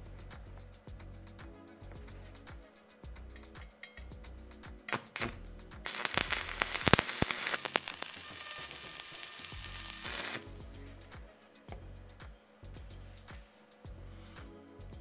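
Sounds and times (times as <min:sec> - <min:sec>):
background music: 0:00.0 - 0:15.0
welding arc crackling sizzle: 0:04.9 - 0:10.5.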